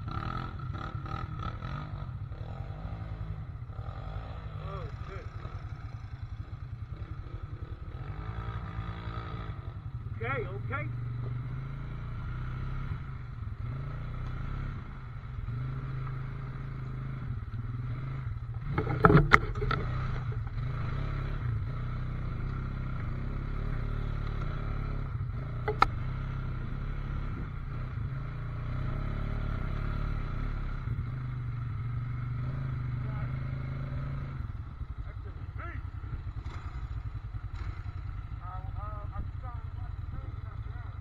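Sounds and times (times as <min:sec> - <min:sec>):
atv engines running: 0:00.0 - 0:41.0.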